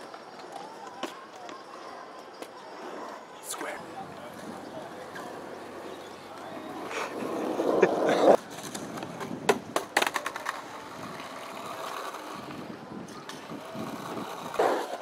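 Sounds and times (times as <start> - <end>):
wheels rolling on concrete: 0.0 - 15.0
person's voice: 3.4 - 4.6
skateboard wooden clacks: 4.0 - 15.0.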